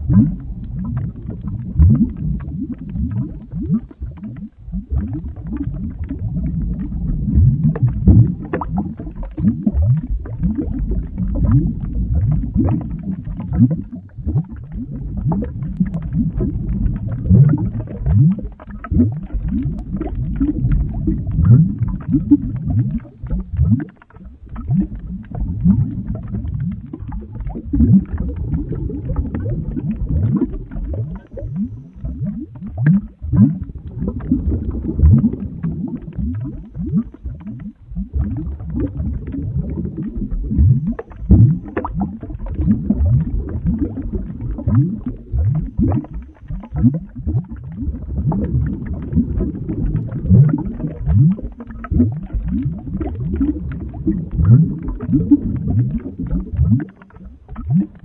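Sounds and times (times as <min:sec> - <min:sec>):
thick liquid boiling with bubbles: 0:00.0 - 0:58.0
low churning: 0:25.5 - 0:37.4.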